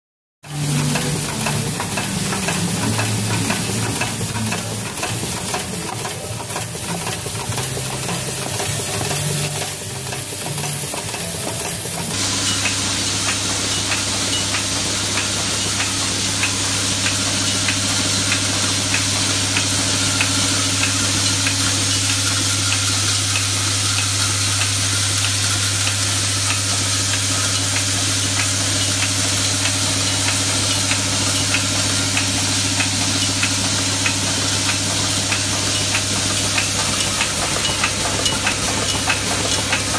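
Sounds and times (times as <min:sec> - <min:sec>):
machine noise: 0:00.4 - 0:39.9
bowl feeder humming: 0:11.3 - 0:23.4.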